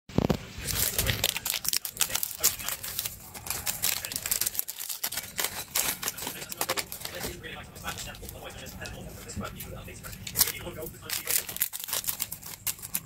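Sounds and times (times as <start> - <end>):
plastic packaging crinkling and tearing: 0.2 - 9.0, 10.0 - 13.0.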